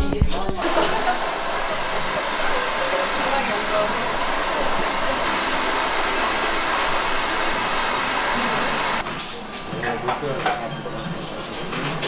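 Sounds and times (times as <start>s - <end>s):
hair dryer blowing: 0.6s - 9.0s.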